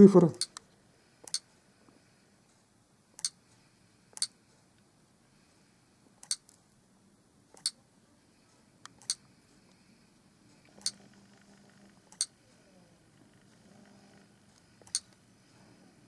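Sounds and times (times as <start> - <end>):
on-screen keyboard clicks: 1.2 - 1.4, 6.2 - 6.6, 7.6 - 7.8, 10.8 - 12.3, 14.8 - 15.2.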